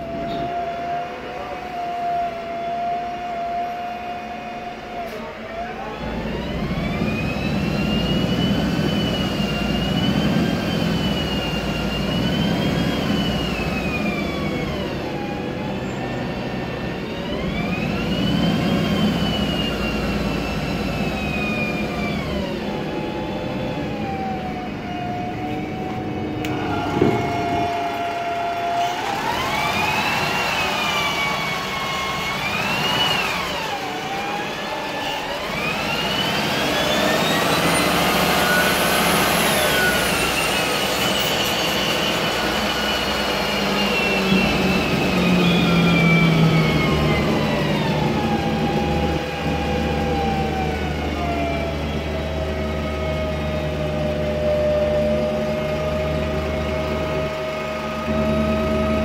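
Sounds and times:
bus engine running: 0.0 - 59.0
bus gearbox whine: 25.3 - 34.0, 54.1 - 59.0.

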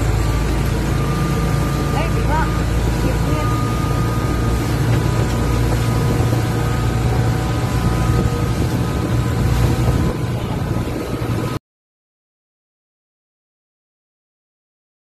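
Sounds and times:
boat engine drone: 0.0 - 11.6
water rushing: 0.0 - 11.6
wind rushing: 4.4 - 11.6.

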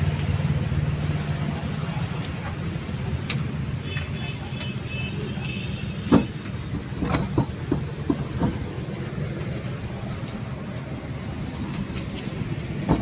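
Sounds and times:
steady hiss and low hum: 0.0 - 13.0
starter motor set down on wood: 6.1 - 9.0, 11.8 - 13.0.

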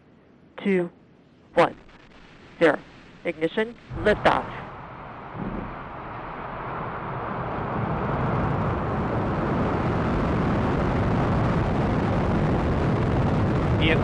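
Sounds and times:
rocket engine roar: 3.4 - 14.0.

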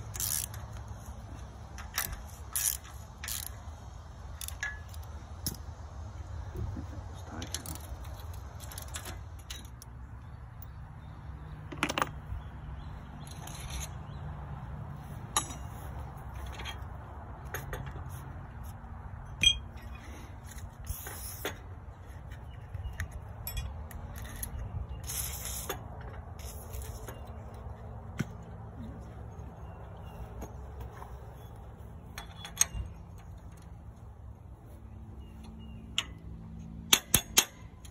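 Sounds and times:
metal clinks and taps: 15.3 - 18.2, 19.2 - 20.0, 32.0 - 33.8.

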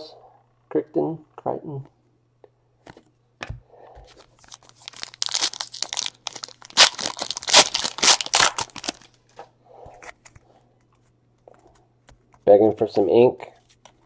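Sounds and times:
plastic wrapping crinkling and tearing: 4.2 - 9.3.

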